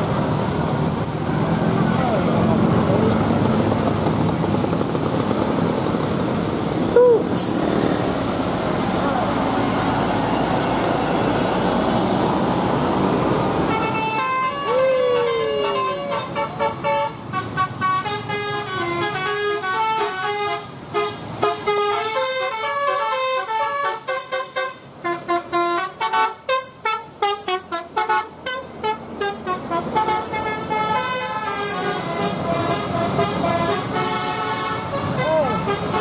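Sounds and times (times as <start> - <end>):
bus musical horn melody: 13.6 - 36.0.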